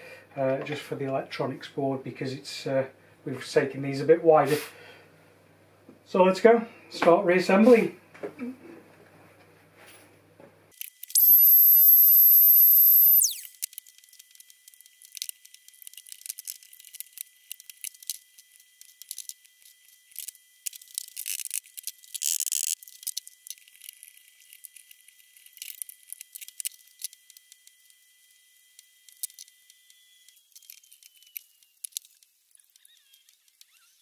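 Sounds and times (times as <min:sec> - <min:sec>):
faint high whine: 0:11.1 - 0:13.6.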